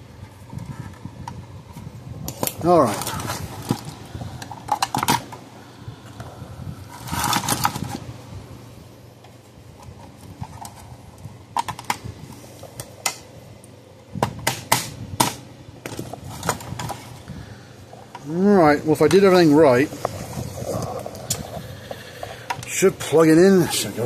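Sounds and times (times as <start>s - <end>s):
hand tools and plastic parts clattering: 2.3s - 5.4s, 6.9s - 8.1s, 14.4s - 17.3s
scraping on plastic: 2.4s - 5.4s, 6.9s - 8.0s.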